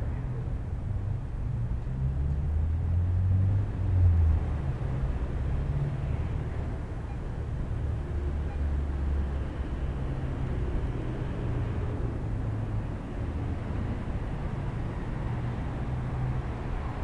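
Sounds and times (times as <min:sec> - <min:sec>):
road traffic rumble and tyre hiss: 0:00.0 - 0:17.0.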